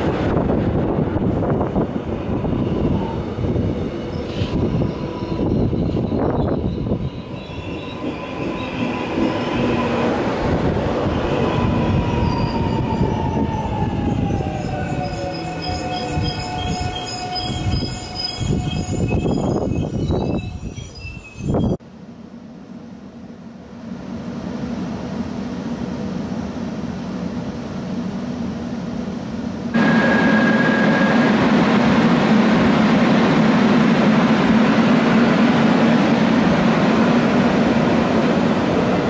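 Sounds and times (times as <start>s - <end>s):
train wheels rumbling on rail: 0.0s - 21.8s, 22.8s - 39.0s
wheel squeal: 14.4s - 21.8s.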